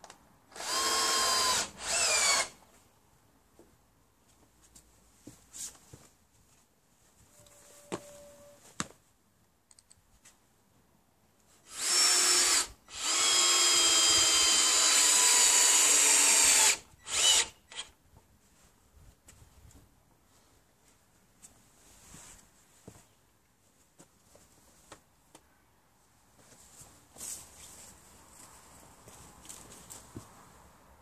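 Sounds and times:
cordless drill driving into wood: 0.5 - 2.6, 11.7 - 18.0.

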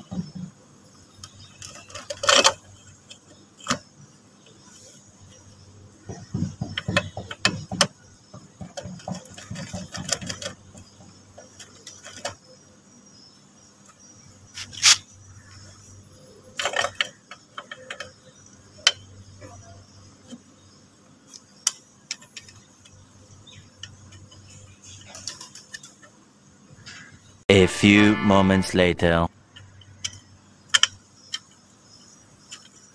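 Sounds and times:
metal clicks and knocks: 6.2 - 12.4.

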